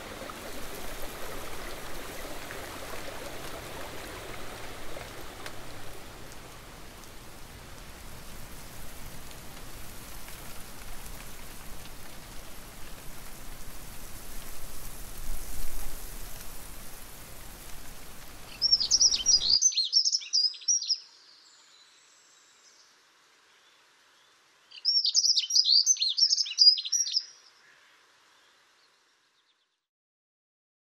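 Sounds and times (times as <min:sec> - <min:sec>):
stream water rushing: 0:00.0 - 0:20.8
songbird chirping: 0:18.4 - 0:29.8.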